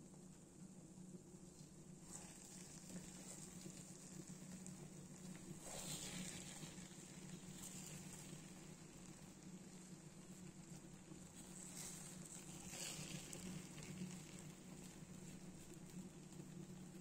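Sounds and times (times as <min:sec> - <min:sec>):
rice sizzling in a pot: 0:00.0 - 0:17.0
spatula stirring: 0:05.3 - 0:08.7.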